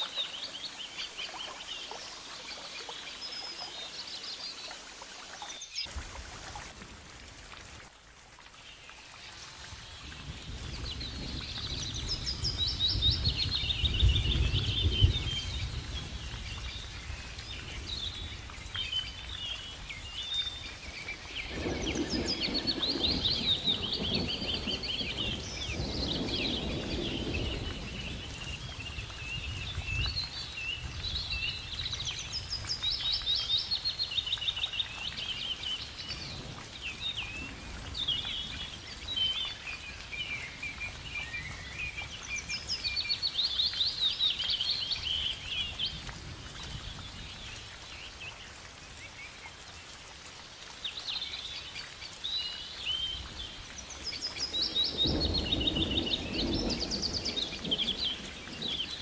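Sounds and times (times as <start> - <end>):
birds chirping and trilling: 10.7 - 48.2, 50.9 - 59.0.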